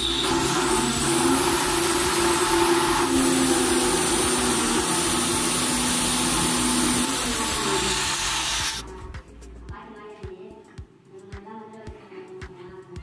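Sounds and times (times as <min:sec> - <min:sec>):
circular saw cutting wood: 0:00.0 - 0:08.8.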